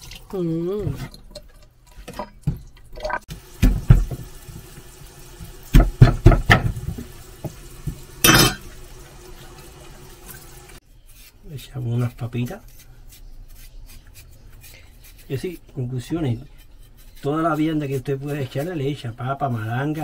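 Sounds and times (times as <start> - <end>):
tap running into steel sink: 3.6 - 4.8, 5.4 - 8.7.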